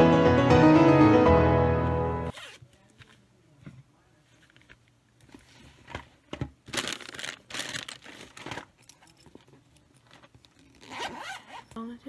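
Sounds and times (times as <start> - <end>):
plastic snack bags crinkling: 6.6 - 8.8.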